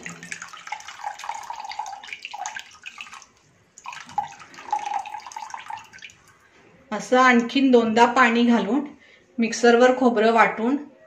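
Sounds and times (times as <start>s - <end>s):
coconut milk splashing into bowl: 0.0s - 6.4s.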